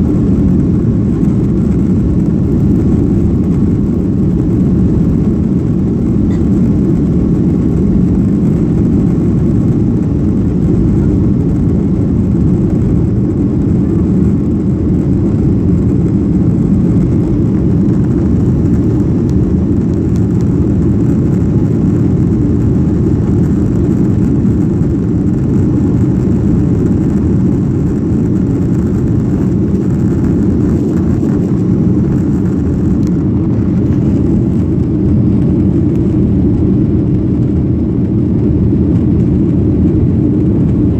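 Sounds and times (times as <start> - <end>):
airplane cabin low rumble: 0.0 - 40.9.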